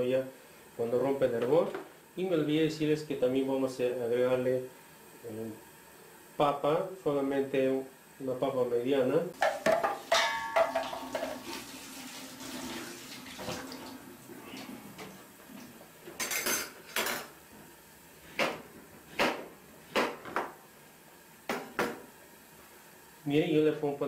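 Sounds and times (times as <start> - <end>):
metal clank ringing: 9.4 - 11.3
pots and utensils clattering: 9.4 - 15.2, 16.2 - 17.4.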